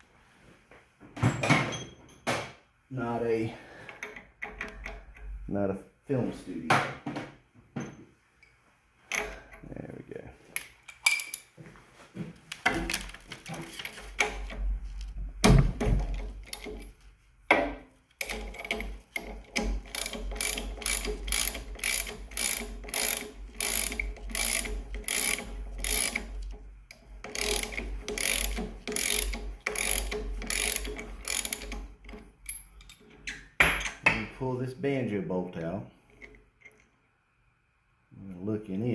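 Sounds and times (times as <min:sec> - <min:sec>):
ratchet wrench clicking: 0:18.2 - 0:33.0.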